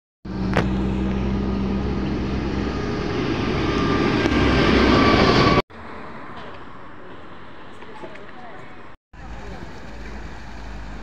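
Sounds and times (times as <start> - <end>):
low engine hum: 0.2 - 5.6, 9.2 - 11.0
road and wind noise: 0.2 - 11.0.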